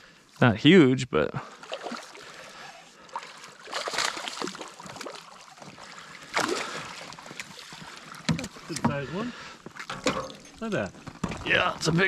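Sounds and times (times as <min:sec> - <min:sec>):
fish thrashing water splashing: 0:01.5 - 0:08.8.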